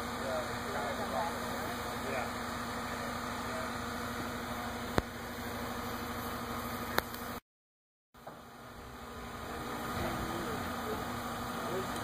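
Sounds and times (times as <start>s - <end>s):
truck engine idling: 0.0s - 7.4s, 8.2s - 12.0s.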